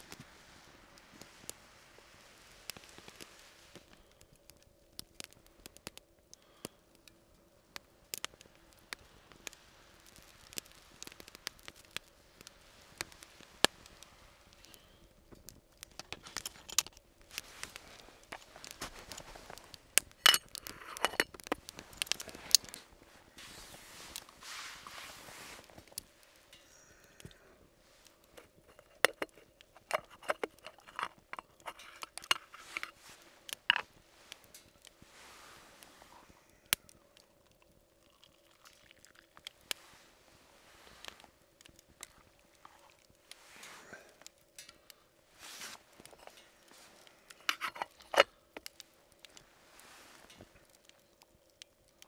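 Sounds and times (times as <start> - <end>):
soft rustling: 0.0 - 4.2, 7.8 - 36.5, 39.5 - 51.3
wood fire crackling: 0.0 - 52.0.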